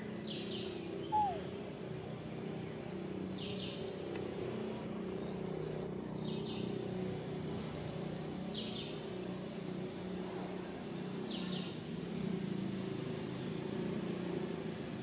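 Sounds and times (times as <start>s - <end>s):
high chirring call: 1.1s - 1.5s.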